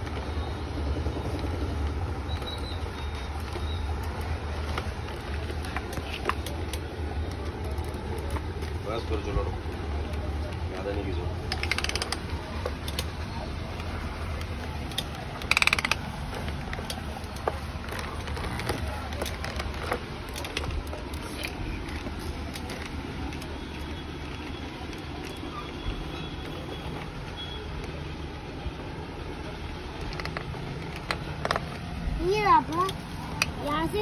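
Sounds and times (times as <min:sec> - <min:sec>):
plastic toy clicking and knocking: 0:11.4 - 0:13.2, 0:13.8 - 0:17.4, 0:30.0 - 0:33.6.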